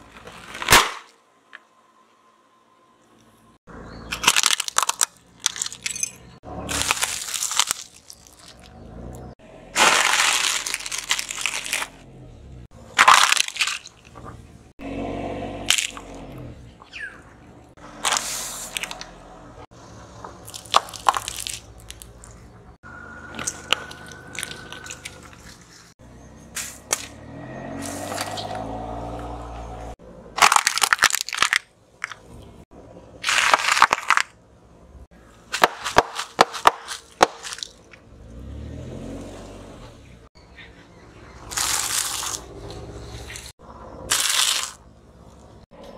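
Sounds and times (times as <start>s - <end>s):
plastic toy crushed under tyre: 0.1s - 1.2s, 4.1s - 6.0s, 6.7s - 8.7s, 9.8s - 11.9s, 13.0s - 14.1s, 20.5s - 22.1s, 30.4s - 32.2s, 33.2s - 34.4s, 35.5s - 37.8s, 44.1s - 44.8s
tyre crunching snack bag: 4.1s - 8.8s, 9.8s - 12.0s, 12.9s - 14.2s, 18.0s - 19.1s, 20.4s - 22.4s, 23.3s - 25.9s, 30.4s - 32.2s, 33.2s - 34.4s, 35.5s - 38.0s, 41.5s - 42.5s, 44.1s - 45.4s.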